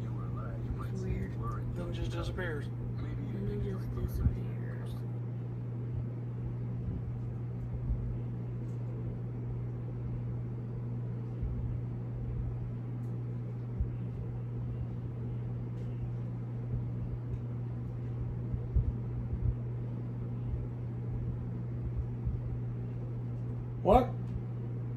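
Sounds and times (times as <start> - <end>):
low droning hum: 0.0 - 24.9
soft low thumps: 5.7 - 8.3, 11.3 - 12.9, 13.7 - 22.8.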